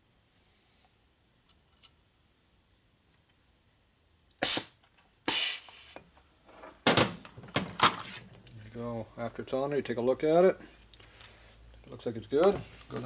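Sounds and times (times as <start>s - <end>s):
compressed air hissing: 4.4s - 6.0s.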